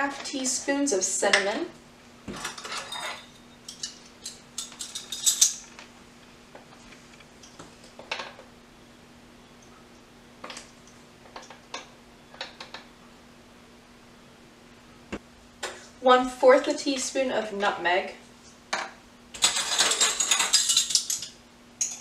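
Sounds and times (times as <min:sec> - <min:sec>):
metal measuring spoons clinking: 0:02.4 - 0:05.6, 0:19.4 - 0:22.0.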